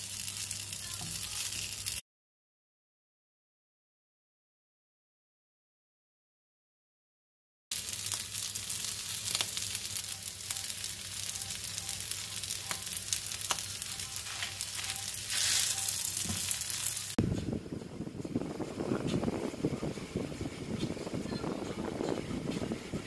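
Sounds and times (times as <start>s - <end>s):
noodles sizzling in a frying pan: 0.0s - 2.0s, 7.7s - 17.2s.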